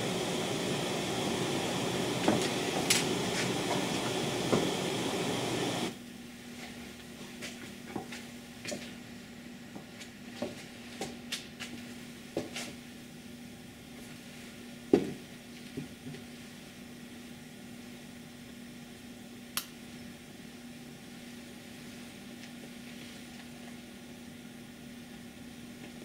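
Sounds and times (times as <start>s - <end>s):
steady hiss: 0.0s - 6.0s.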